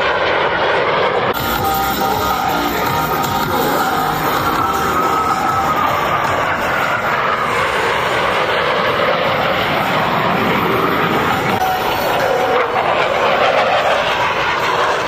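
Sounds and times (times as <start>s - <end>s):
jet engines roaring past: 0.0s - 15.0s
music: 1.4s - 7.6s.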